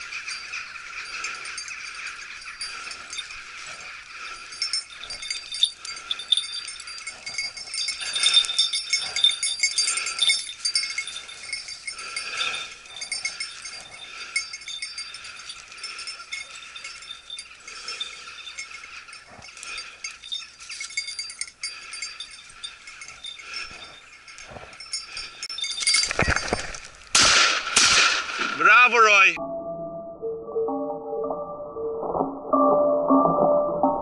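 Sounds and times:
dog collar bell jingling: 0:00.0 - 0:27.1.

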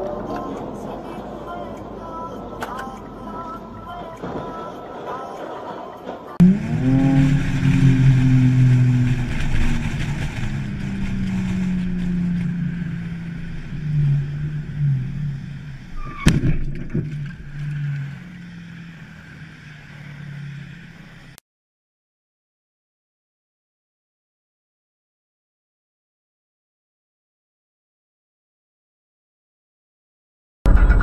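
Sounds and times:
car engine: 0:00.0 - 0:21.4
road noise: 0:00.0 - 0:21.4
car collision bang: 0:16.0 - 0:17.4.

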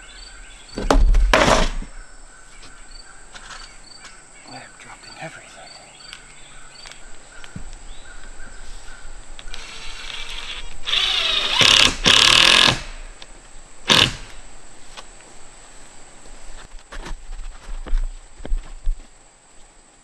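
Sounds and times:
cordless drill driving screws: 0:09.5 - 0:13.0, 0:13.9 - 0:14.3.

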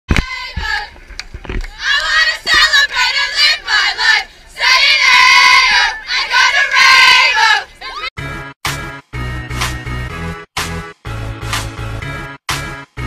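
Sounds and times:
girls chanting a cheer: 0:01.7 - 0:08.1
music with a beat: 0:08.2 - 0:13.0.

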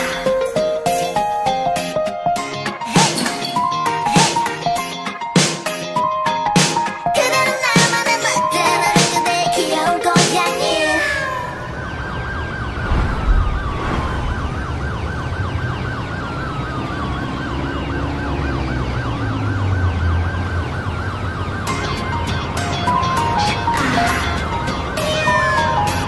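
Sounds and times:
music: 0:00.0 - 0:11.6, 0:21.6 - 0:26.0
rising and falling siren wail: 0:10.7 - 0:26.0
fast warbling siren: 0:10.8 - 0:22.2
low rumble: 0:12.7 - 0:15.5.

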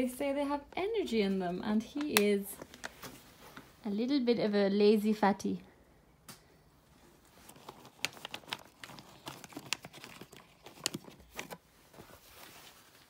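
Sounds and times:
plastic packet crinkling: 0:07.2 - 0:11.7.

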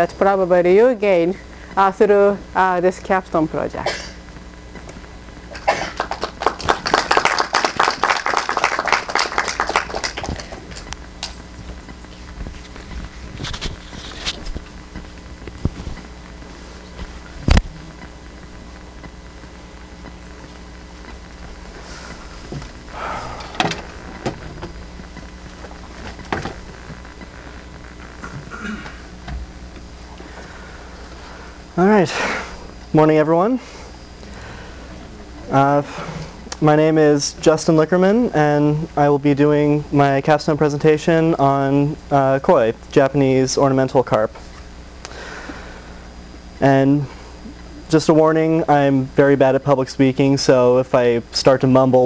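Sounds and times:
low hum of room noise: 0:00.0 - 0:52.0
audience clapping: 0:05.6 - 0:11.4.

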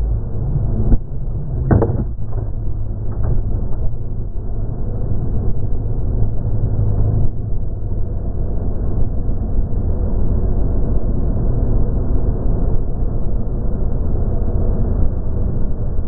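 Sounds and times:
wind rushing over microphone: 0:00.0 - 0:16.0
sharp knocks: 0:01.7 - 0:02.5.

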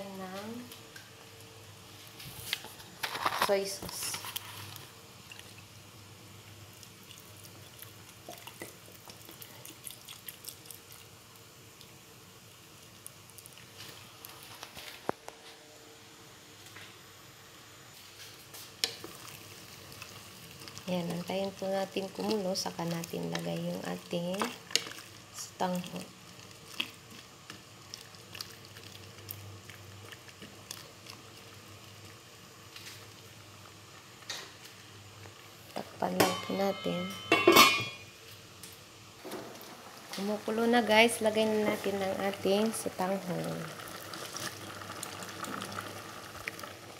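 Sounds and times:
broth simmering with pops: 0:00.2 - 0:15.4, 0:17.8 - 0:36.9, 0:37.6 - 0:46.9
wooden spatula stirring: 0:18.8 - 0:31.6.

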